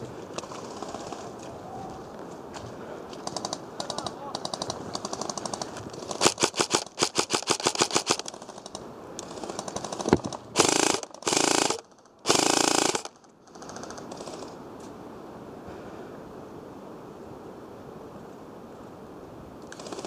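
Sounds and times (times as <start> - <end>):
airsoft gun firing: 3.4 - 8.7, 9.4 - 13.2.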